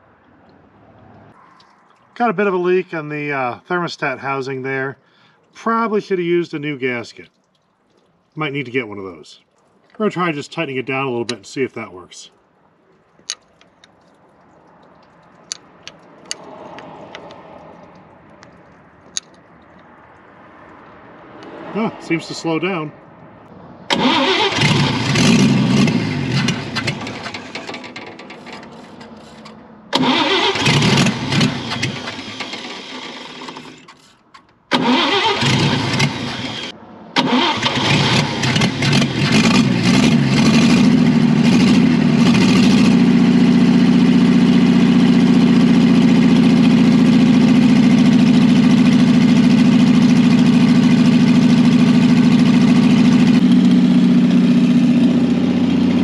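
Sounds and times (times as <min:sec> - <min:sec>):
engine idling: 0:23.9 - 0:34.1, 0:34.7 - 0:56.0
engine starter cranking: 0:23.9 - 0:40.6.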